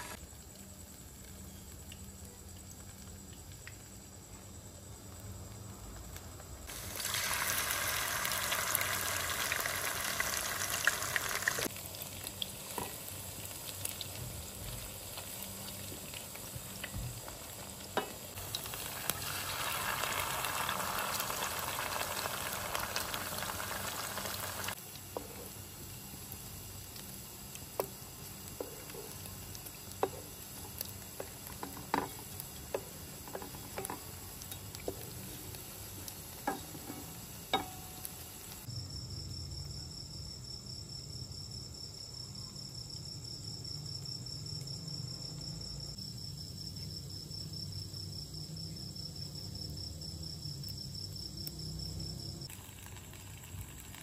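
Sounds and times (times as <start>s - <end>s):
food sizzling in oil: 0.0s - 2.1s, 6.6s - 38.7s, 52.2s - 54.0s.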